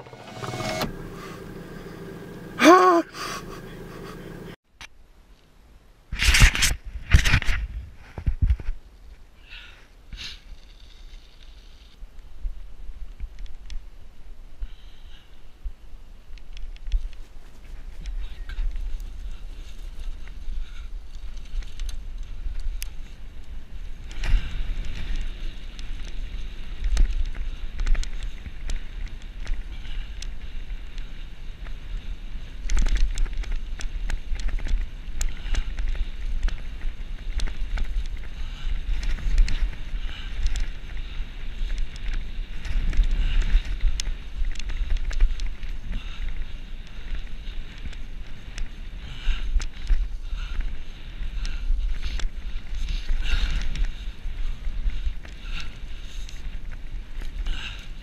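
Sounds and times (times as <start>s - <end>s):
tyres rumbling on dirt: 0.0s - 4.6s.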